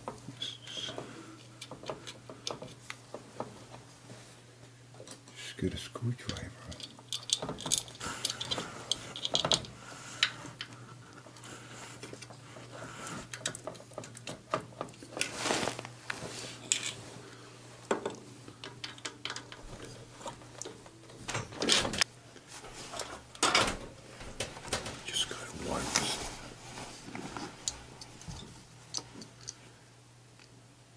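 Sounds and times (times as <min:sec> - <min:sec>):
rustling swishes: 0:15.2 - 0:17.2.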